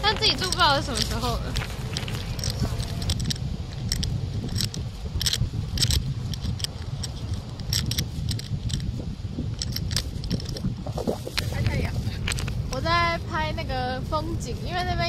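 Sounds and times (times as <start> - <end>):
footsteps on path: 0.0 - 3.9
distant traffic: 0.0 - 13.8
wind rumble: 0.0 - 15.0.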